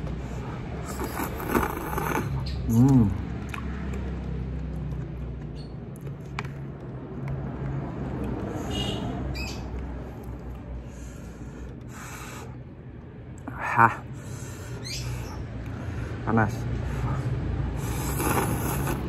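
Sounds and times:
person chewing noodles: 0.2s - 7.0s, 17.0s - 19.0s
fork scraping plastic tray: 18.0s - 19.0s.

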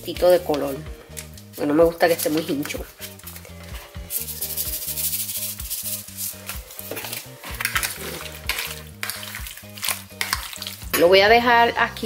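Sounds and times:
background music with low notes: 0.0s - 12.0s
fork scraping plastic bowl: 2.1s - 11.0s.

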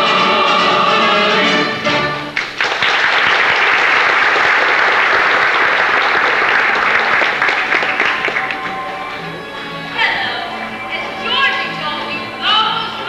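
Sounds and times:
audience applause: 2.3s - 9.8s.

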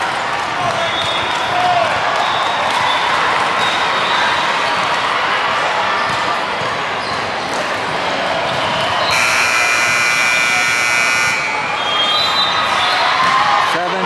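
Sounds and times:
hubbub of busy gym: 0.0s - 14.0s
buzzer: 9.1s - 12.1s.

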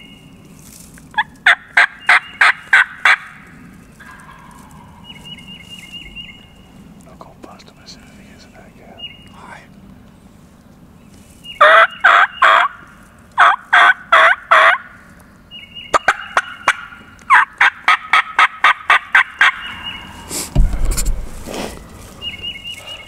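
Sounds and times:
turkey gobbling: 1.1s - 3.4s, 4.0s - 5.5s, 11.6s - 12.8s, 13.4s - 14.9s, 15.9s - 20.6s
thump: 20.4s - 21.5s.

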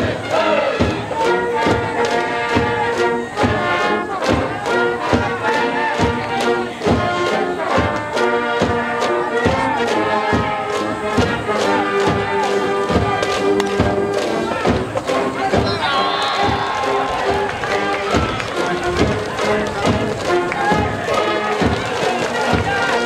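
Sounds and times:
brass band playing: 0.0s - 23.0s
drum beat: 0.0s - 23.0s.

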